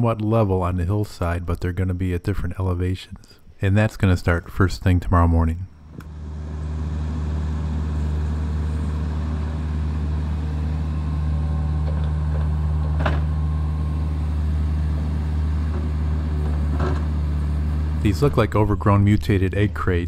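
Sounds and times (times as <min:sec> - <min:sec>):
excavator diesel engine running: 0:05.9 - 0:20.0.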